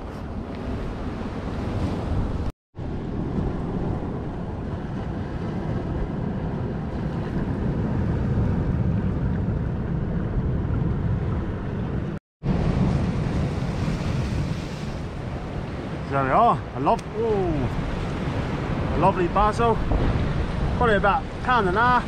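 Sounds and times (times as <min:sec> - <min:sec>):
wind buffeting microphone: 0:00.0 - 0:22.0
rough sea surging against rocks: 0:12.5 - 0:22.0.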